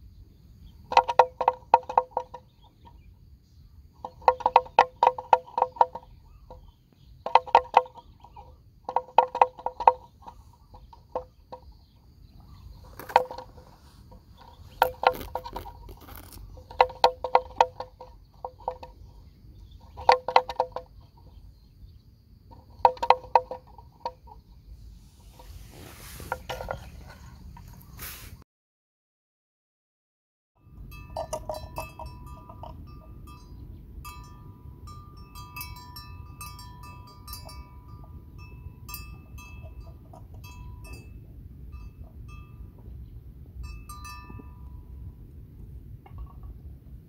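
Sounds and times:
buffalo crunching grass: 0:12.6 - 0:20.8, 0:25.0 - 0:28.4.

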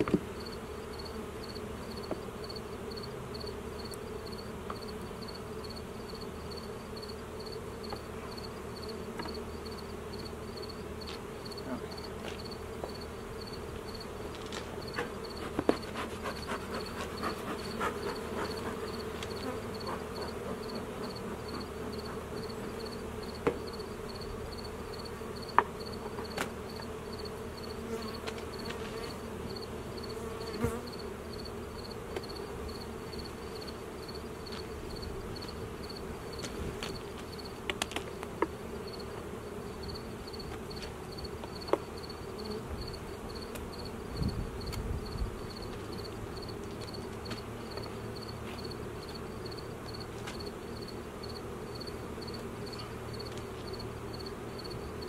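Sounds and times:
hive tool knocking wooden boxes: 0:00.0 - 0:00.4, 0:16.8 - 0:23.8, 0:25.4 - 0:27.0
bees buzzing: 0:00.0 - 0:55.0.

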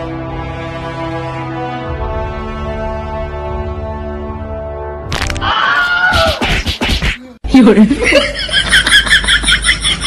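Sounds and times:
sharp crack: 0:05.0 - 0:05.6.

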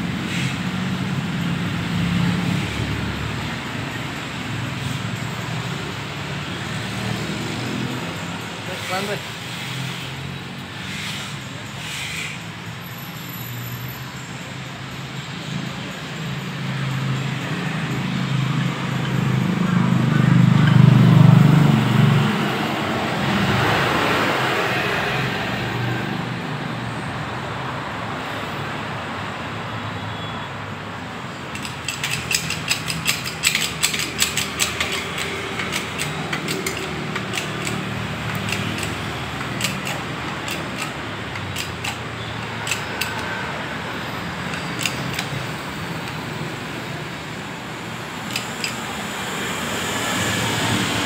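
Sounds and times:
mechanical clicking: 0:31.5 - 0:43.4, 0:44.3 - 0:46.2, 0:48.3 - 0:48.8.

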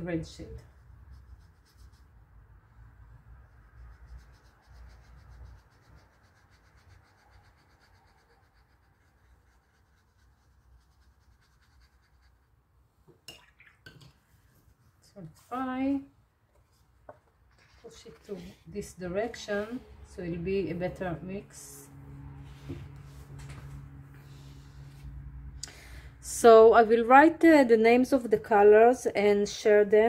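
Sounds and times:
paintbrush scratching and rubbing: 0:00.3 - 0:02.3, 0:03.4 - 0:12.6, 0:16.6 - 0:19.9.

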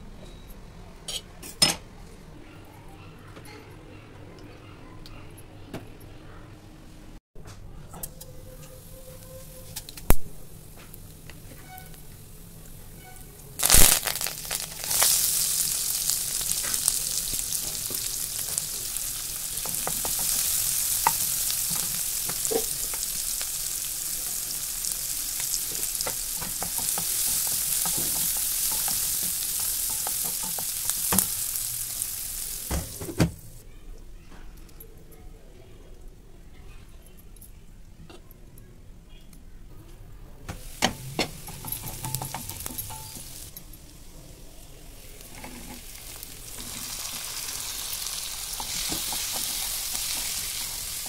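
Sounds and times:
stirring in a pan: 0:08.0 - 0:33.1, 0:40.6 - 0:51.0
oil sizzling and spattering: 0:08.6 - 0:33.6, 0:40.5 - 0:44.0, 0:44.8 - 0:51.0
food hitting hot oil: 0:13.6 - 0:33.6, 0:40.5 - 0:43.7, 0:45.2 - 0:51.0.

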